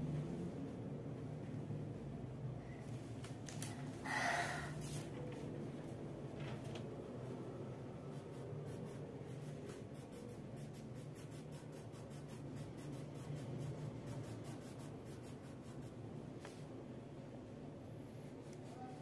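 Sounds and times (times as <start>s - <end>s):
low steady hum: 0.0s - 19.0s
crayon scribbling on paper: 8.1s - 16.0s, 18.2s - 19.0s.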